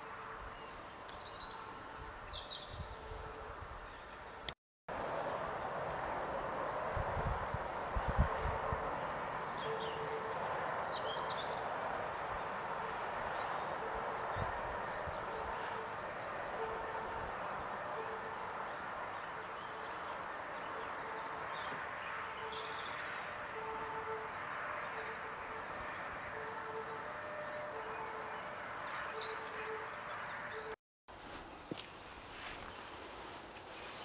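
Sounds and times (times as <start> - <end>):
birds chirping trills: 5.7 - 30.8.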